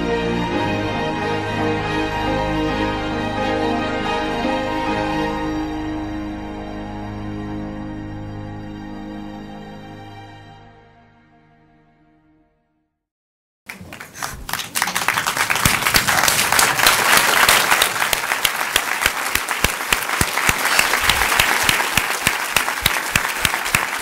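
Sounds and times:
crowd applauding: 13.7s - 24.0s.

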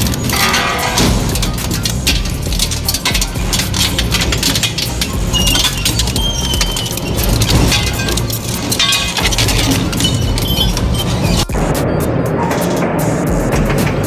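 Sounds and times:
crushing machine cracking material: 0.0s - 11.5s
high-pitched squeals: 4.2s - 12.9s.

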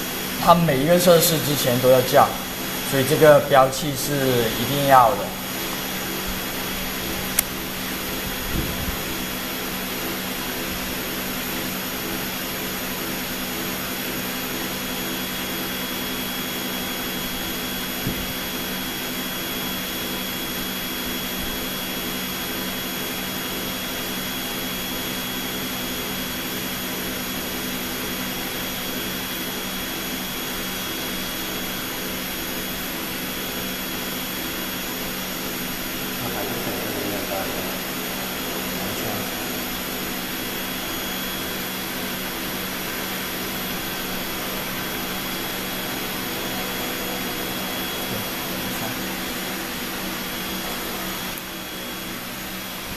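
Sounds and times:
blower whooshing hum: 0.0s - 52.9s
faint high whine: 0.0s - 52.9s.

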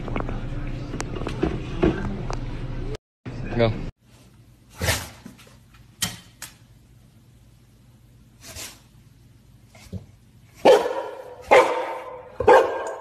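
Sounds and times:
dog barking loudly: 10.6s - 13.0s.

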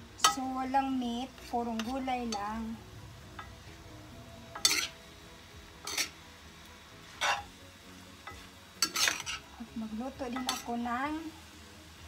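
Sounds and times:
faint frying sizzle: 0.0s - 12.0s
metal spoon scraping frying pan: 1.3s - 2.6s, 4.5s - 5.0s, 5.8s - 6.2s, 7.1s - 7.5s, 8.2s - 9.5s, 10.3s - 10.8s.

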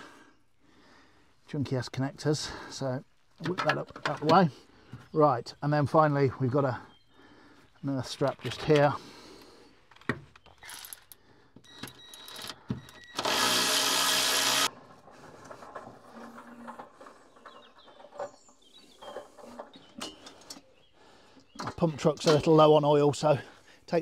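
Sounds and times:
tool handling clicks and knocks: 3.4s - 5.1s, 8.1s - 9.0s, 9.8s - 20.7s, 21.4s - 22.6s
power tool running: 12.2s - 14.7s.

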